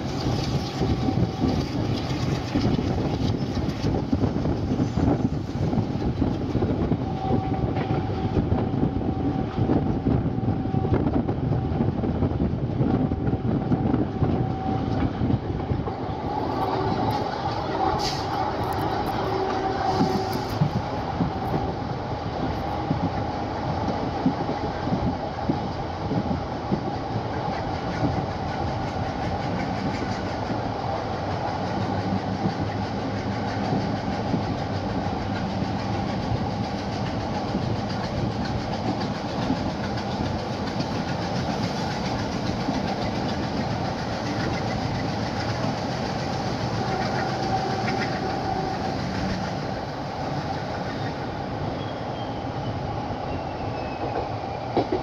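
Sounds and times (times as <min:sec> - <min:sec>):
train wheels rumbling on rails: 0:00.0 - 0:55.0.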